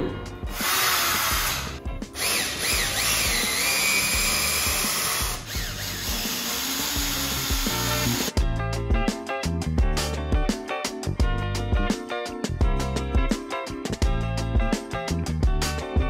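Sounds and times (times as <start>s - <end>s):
cordless drill motor whine: 2.2s - 8.3s.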